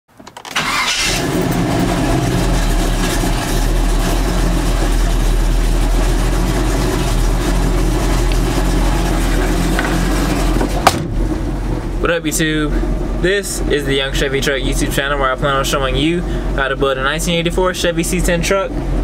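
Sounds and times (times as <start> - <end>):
engine starting and idling: 0.5 - 11.1.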